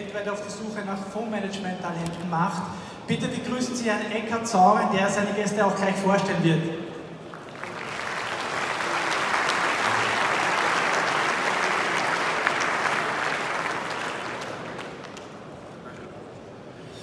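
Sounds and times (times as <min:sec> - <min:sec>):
large audience applauding: 0:07.2 - 0:15.6.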